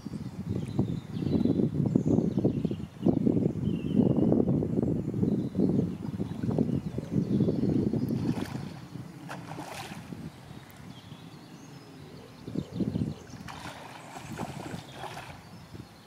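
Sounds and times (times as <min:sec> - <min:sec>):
fish splashing in water: 0:08.1 - 0:10.2, 0:13.3 - 0:15.5.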